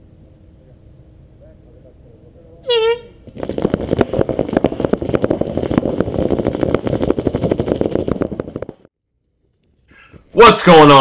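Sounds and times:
horn blast: 2.6 - 3.2
paintball markers firing rapidly: 3.3 - 8.8.

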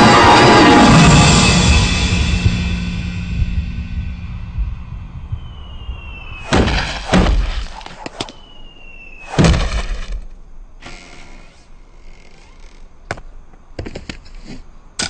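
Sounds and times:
soft rushing noise: 2.4 - 10.7
short falling whistle: 5.3 - 10.0
loud smashing crashes: 6.3 - 8.5, 9.2 - 10.3.

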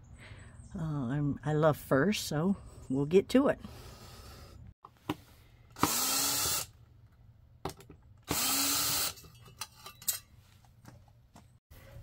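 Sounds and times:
cordless drill spinning: 5.7 - 6.8, 8.2 - 9.3.

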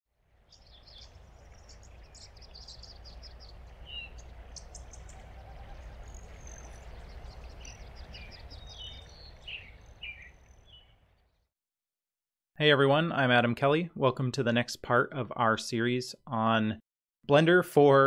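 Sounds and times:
birds chirping and calling: 0.5 - 11.0.

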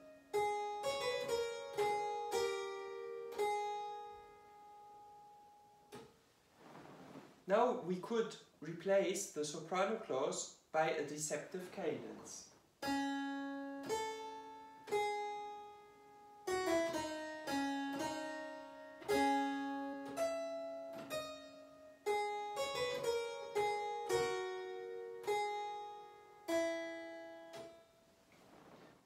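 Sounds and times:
keyboard instrument fugue: 12.8 - 27.9.

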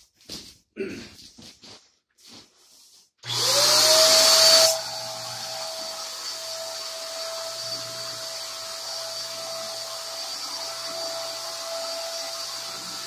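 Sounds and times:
electric paint sprayer whining: 3.2 - 13.0.

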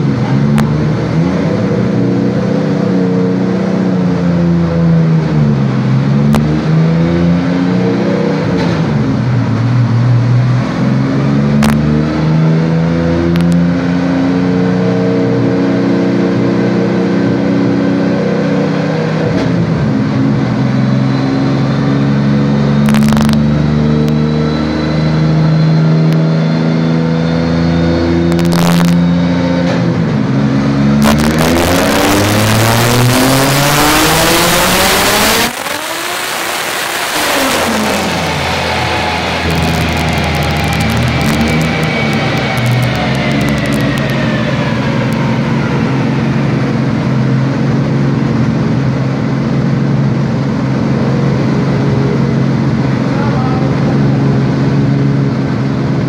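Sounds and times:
car engine revving under load: 0.0 - 56.0
loud rushing noise: 29.8 - 56.0.

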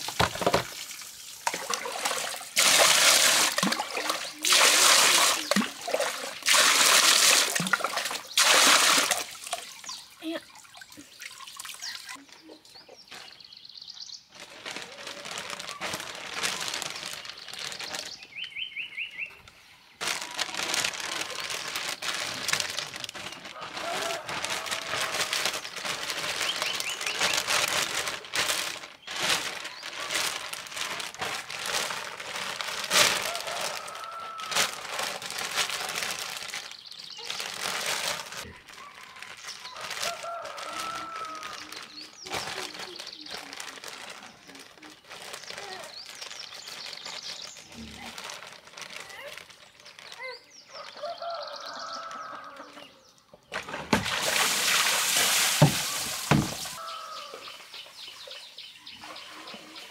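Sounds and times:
plastic bag rustling and crinkling: 0.0 - 10.4, 11.8 - 13.6, 14.3 - 19.4, 20.0 - 52.4, 53.5 - 58.2
bird chirping: 17.2 - 20.0, 56.8 - 59.9.

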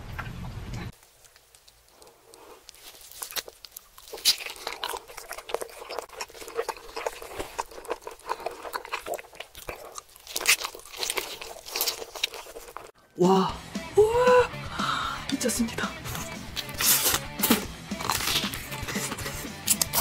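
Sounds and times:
crunching and chewing: 0.9 - 13.1, 16.0 - 20.0
chicken skin crackling: 1.0 - 13.0, 16.2 - 20.0.

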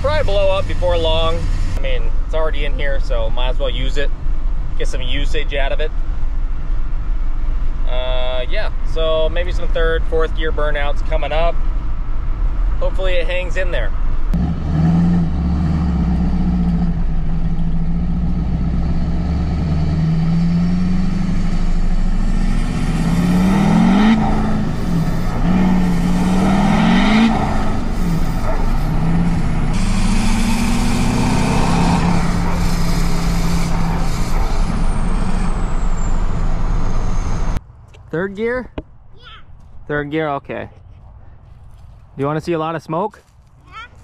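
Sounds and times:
truck engine shifting gears: 0.0 - 2.4, 13.9 - 38.8
road noise: 0.0 - 44.0.

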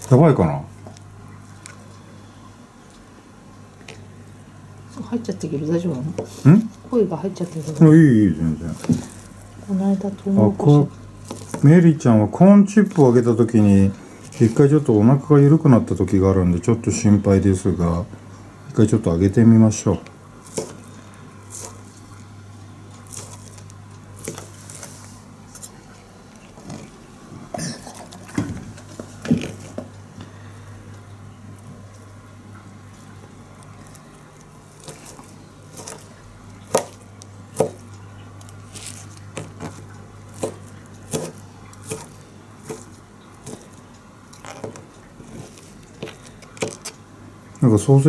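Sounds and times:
steady low hum: 0.0 - 48.0
knife chopping on plastic board: 8.7 - 9.4, 11.2 - 11.7, 20.4 - 21.9, 23.0 - 24.9, 34.8 - 37.9, 38.6 - 43.8, 44.4 - 47.0.

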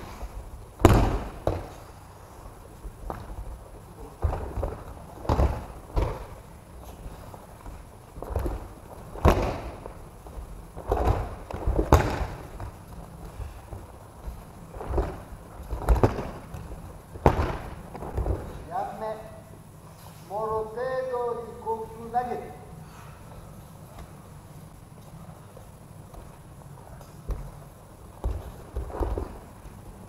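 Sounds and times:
bodies thudding onto mats: 0.7 - 1.9, 2.8 - 18.7, 27.2 - 29.7.

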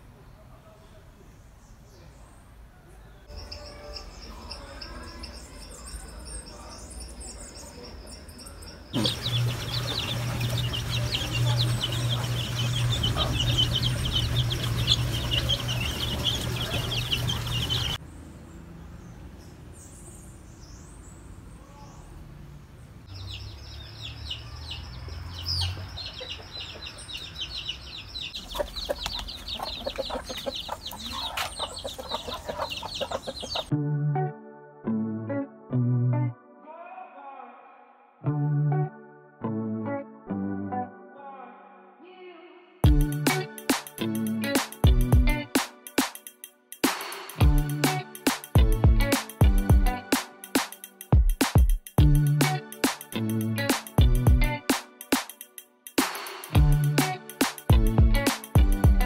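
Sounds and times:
chicks peeping: 7.7 - 18.0, 23.1 - 33.7
hens clucking: 9.0 - 18.0, 25.6 - 27.4, 28.3 - 33.7.

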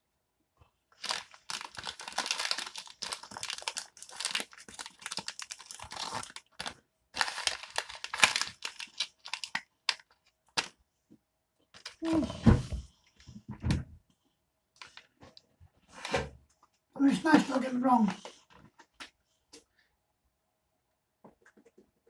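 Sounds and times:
plastic wrapper crinkling: 1.0 - 10.7.

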